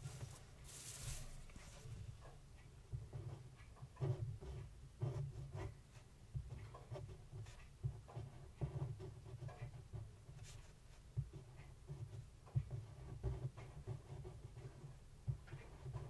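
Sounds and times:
pen scratching on paper: 4.0 - 5.8, 6.9 - 10.8, 11.4 - 15.0, 15.6 - 16.0.

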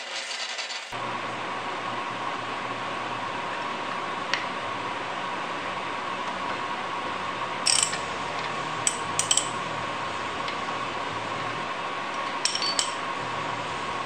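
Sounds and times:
socket wrench clicking on bolts: 7.7 - 8.0, 12.4 - 13.0.

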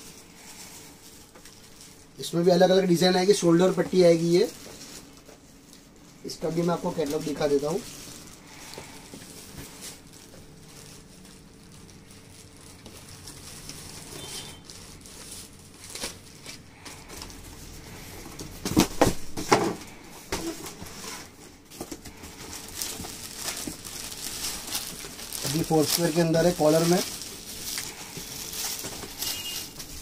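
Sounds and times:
plastic wrapping rustling: 0.0 - 30.0.

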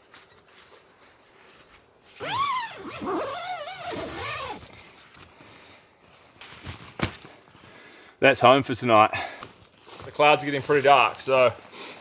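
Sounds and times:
tent zipper pulled: 2.2 - 4.8.

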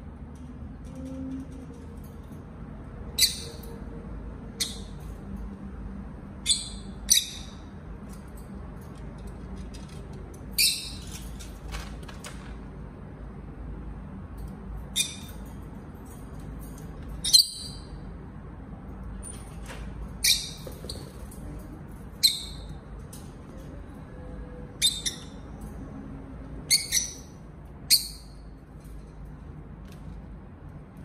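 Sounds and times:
lovebirds chirping: 6.4 - 7.7, 10.6 - 11.1, 26.7 - 28.4.

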